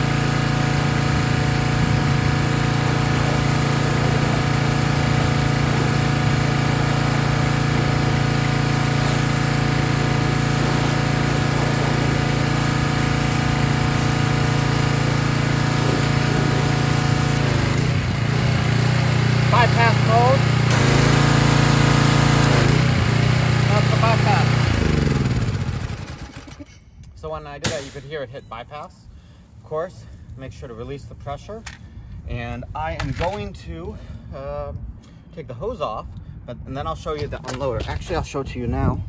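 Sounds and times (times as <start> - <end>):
small gasoline engine running: 0.0 - 26.7.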